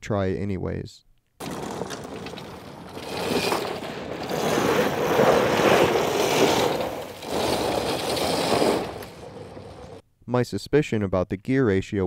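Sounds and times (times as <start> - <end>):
electric quad tyres spinning in dirt: 1.4 - 10.0.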